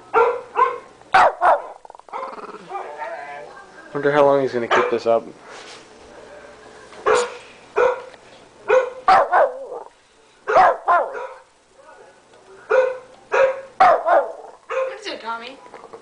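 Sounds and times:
dog barking: 0.1 - 3.0, 4.7 - 5.0, 7.0 - 8.1, 8.7 - 9.9, 10.5 - 11.5, 12.7 - 15.1.

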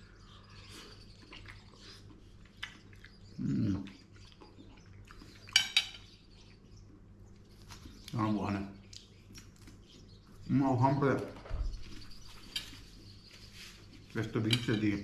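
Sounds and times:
faint chewing: 0.3 - 8.2, 8.8 - 10.4
fork clinking against plate: 5.5 - 6.1.

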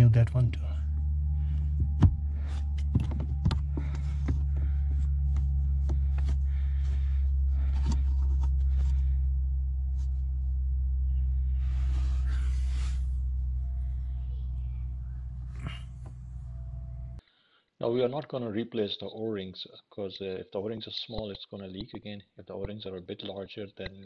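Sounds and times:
steady low hum: 0.0 - 17.2.

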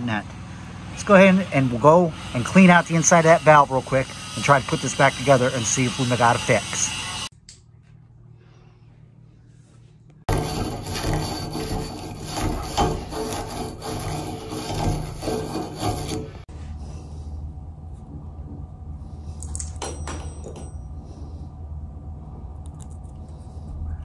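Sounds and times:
tube brush scrubbing metal: 10.3 - 16.5
low steady hum: 16.2 - 24.0.

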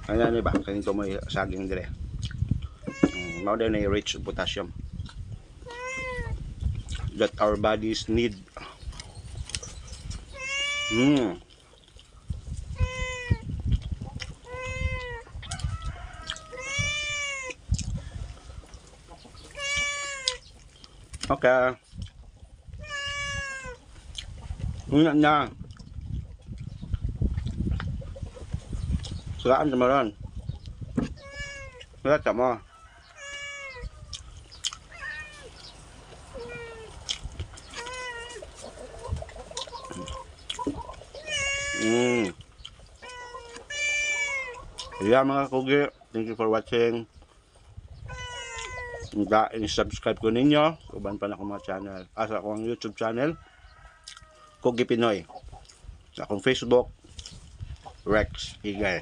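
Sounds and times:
cat meowing: 2.8 - 3.6, 5.6 - 6.4, 10.3 - 11.2, 12.7 - 13.5, 14.4 - 15.3, 16.4 - 17.6, 19.5 - 20.4, 22.8 - 23.8, 31.1 - 31.9, 33.2 - 34.1, 34.9 - 35.5, 36.4 - 36.9, 37.7 - 38.4, 41.2 - 42.3, 43.0 - 45.2, 48.0 - 49.2.

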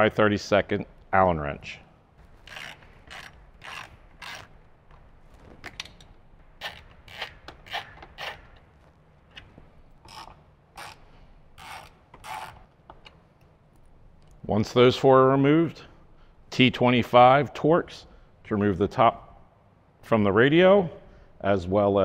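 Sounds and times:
ratchet wrench clicking: 2.5 - 4.5, 10.0 - 11.0, 11.6 - 13.0.

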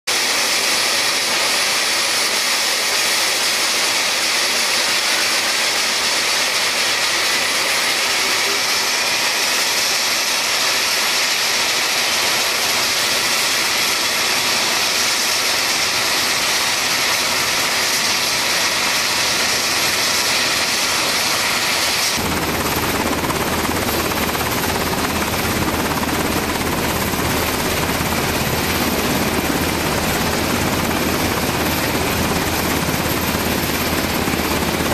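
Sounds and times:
helicopter engines and rotor: 0.1 - 34.9.

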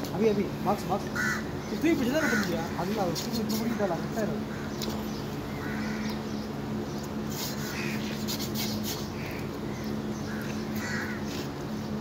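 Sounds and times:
low mechanical hum: 0.0 - 12.0
crows cawing: 1.1 - 4.9, 5.5 - 6.4, 7.6 - 8.2, 9.2 - 11.5.

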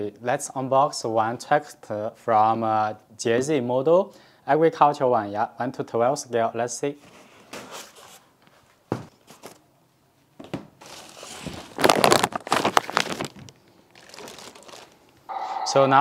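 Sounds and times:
plastic bag crinkling: 10.8 - 15.3.

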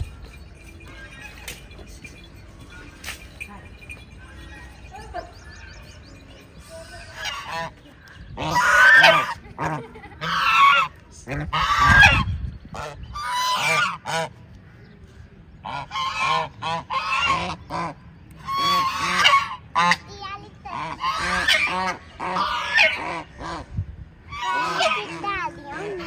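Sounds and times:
geese honking: 3.8 - 14.4, 15.6 - 20.1, 20.7 - 26.0.

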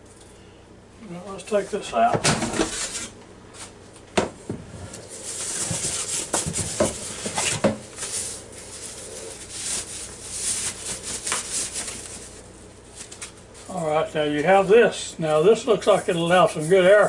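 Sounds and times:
packing sheet crinkling: 7.4 - 13.4.

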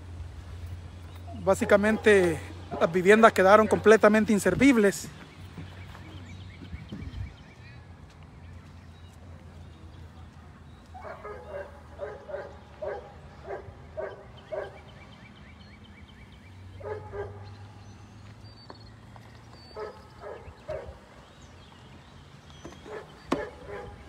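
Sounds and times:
dog barking: 1.3 - 4.0, 11.0 - 14.8, 16.8 - 17.6, 19.8 - 21.0, 22.8 - 24.0.

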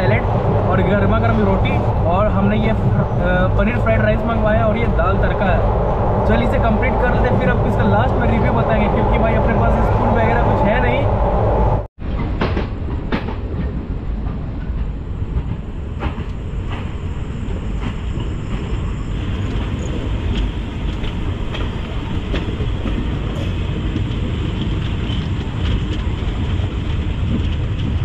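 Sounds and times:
train coaches rumbling: 0.0 - 28.0
wheels clacking over rail joints: 17.7 - 28.0.

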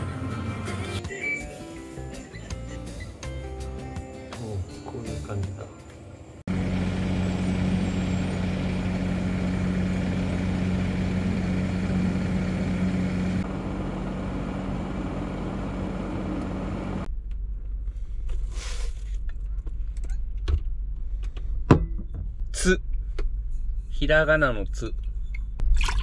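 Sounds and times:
engine idling: 5.9 - 17.1.

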